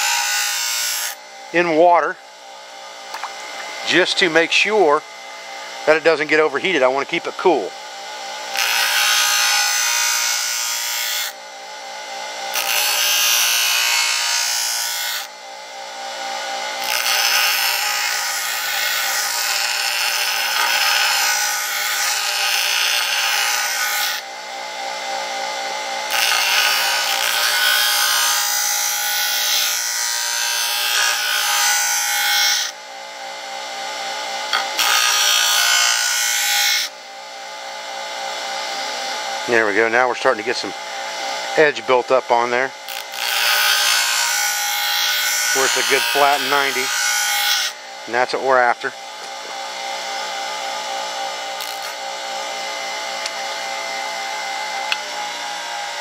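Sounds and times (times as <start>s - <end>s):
bench grinder motor humming: 0.0s - 56.0s
steel grinding on stone wheel: 8.5s - 11.3s, 16.8s - 24.2s, 38.8s - 50.2s.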